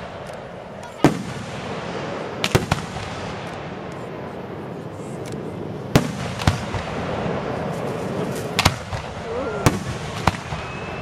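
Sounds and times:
fireworks bursting: 0.0s - 11.0s
steady background noise: 0.0s - 11.0s.

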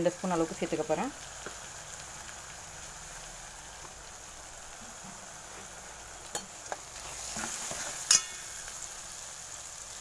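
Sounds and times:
masala sizzling in a pan: 0.0s - 10.0s.

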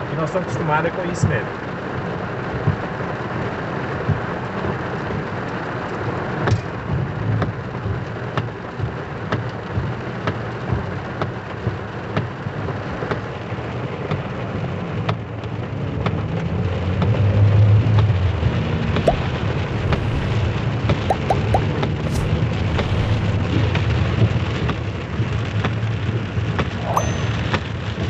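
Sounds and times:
heavy rain on car roof: 1.0s - 17.2s, 22.0s - 26.8s
low rumble: 19.0s - 24.3s.

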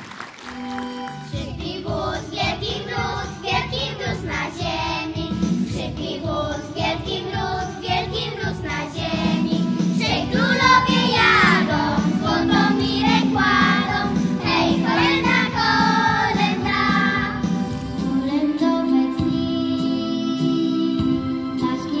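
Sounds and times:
girls singing a carol: 1.4s - 17.4s.

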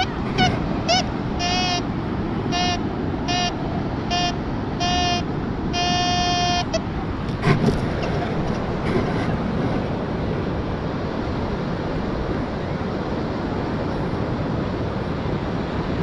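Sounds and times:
metal detector buzzy beeps: 0.0s - 1.9s, 2.5s - 6.8s.

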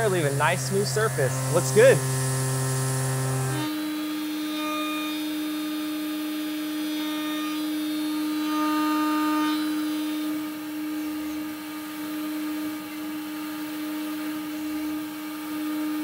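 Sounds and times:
milling spindle whine: 0.0s - 16.0s.

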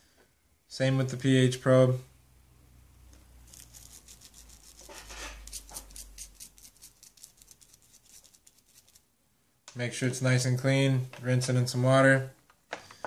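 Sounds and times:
toothbrush scrubbing probe: 3.5s - 9.0s.

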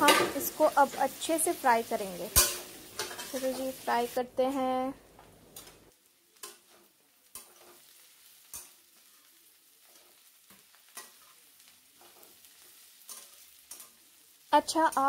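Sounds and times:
onions sizzling in oil: 0.0s - 15.0s
metal spatula scraping a pan: 2.3s - 3.8s, 6.4s - 14.1s.

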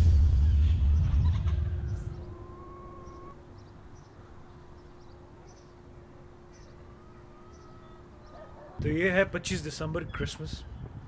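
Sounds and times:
low steady hum: 0.0s - 11.0s
high bird chirps: 0.9s - 8.8s.

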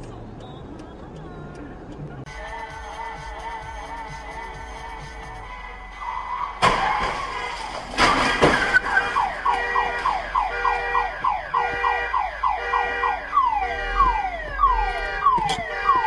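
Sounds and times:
car alarm chirping: 6.0s - 16.0s
car crash crunching impact: 6.6s - 10.7s.

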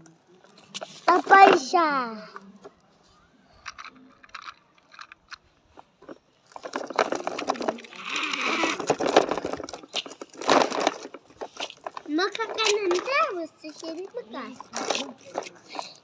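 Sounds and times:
toy truck wheels scraping on dirt: 6.5s - 16.0s.

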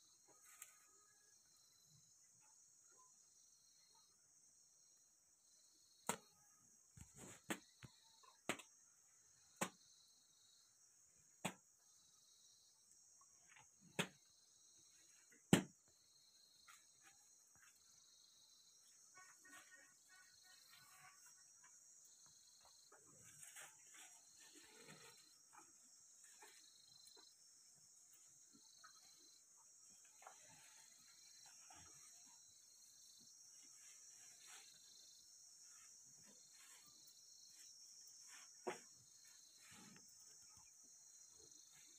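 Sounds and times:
crickets chirring: 11.9s - 41.9s.

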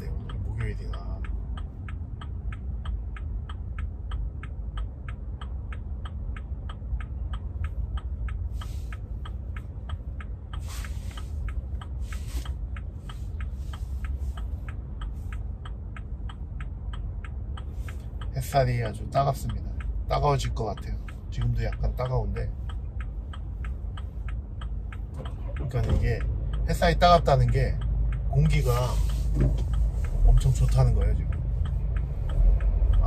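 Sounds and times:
turn signal ticking: 0.0s - 33.0s
car cabin rumble: 6.9s - 33.0s.

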